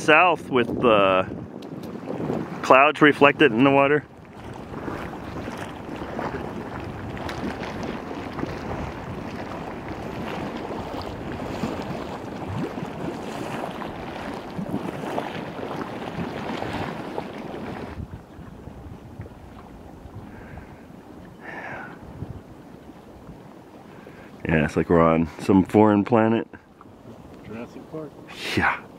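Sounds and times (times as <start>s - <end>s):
mud pots bubbling and gurgling: 0.0s - 28.9s
mud bubbles popping: 4.2s - 20.1s.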